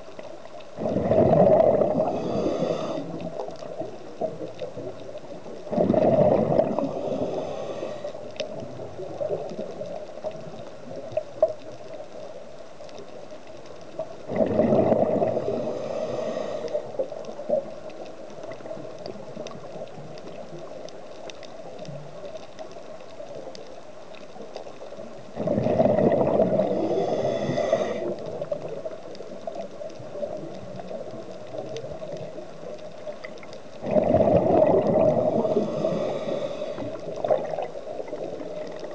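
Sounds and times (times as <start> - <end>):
faint clicks: 0.0 - 0.8, 1.5 - 25.4, 26.0 - 38.9
rush of regulator bubbles: 0.8 - 4.5, 5.7 - 9.7, 14.3 - 17.0, 25.4 - 28.8, 33.8 - 38.9
steady hiss: 1.5 - 14.4, 15.0 - 25.4, 26.2 - 33.8, 34.5 - 38.9.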